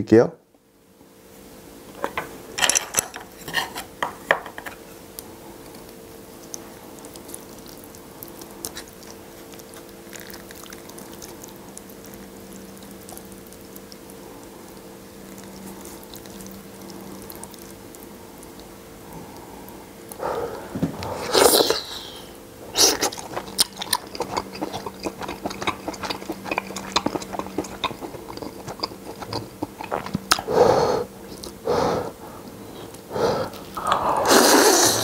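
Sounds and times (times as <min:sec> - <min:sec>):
low background hum: 0:00.0 - 0:35.0
wet stirring of noodles: 0:05.6 - 0:20.2, 0:22.6 - 0:30.5.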